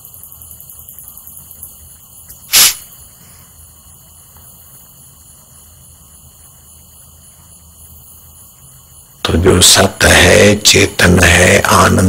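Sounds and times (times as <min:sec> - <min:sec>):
faint background hum: 0:00.0 - 0:12.0
short loud hiss: 0:02.4 - 0:03.4.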